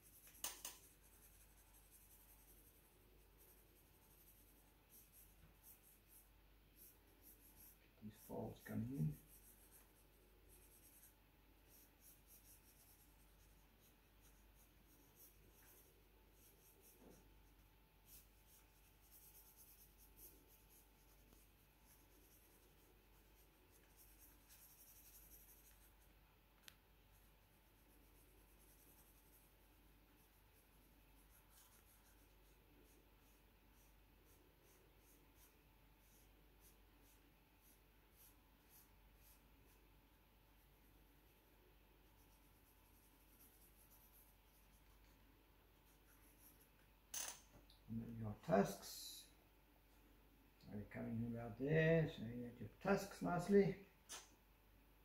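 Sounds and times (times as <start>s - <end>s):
pencil scratching on paper: 0.0s - 26.1s, 27.1s - 39.8s, 42.0s - 46.7s.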